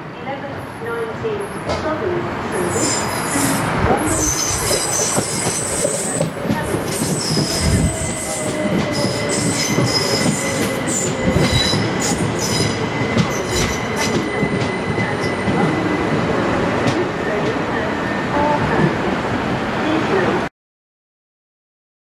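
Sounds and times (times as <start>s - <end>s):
train wheels squealing: 2.6s - 6.3s, 6.9s - 16.0s
wheels rumbling on rails: 2.6s - 20.3s.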